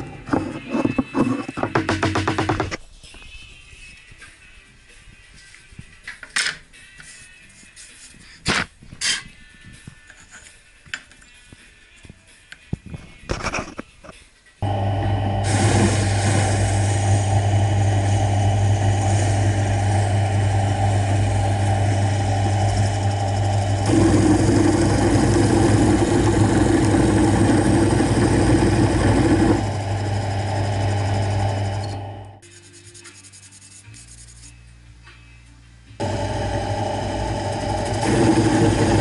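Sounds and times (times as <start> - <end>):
drill bit cutting wood: 14.6 - 32.4, 36.0 - 39.0
drill press motor humming: 14.6 - 32.4, 36.0 - 39.0.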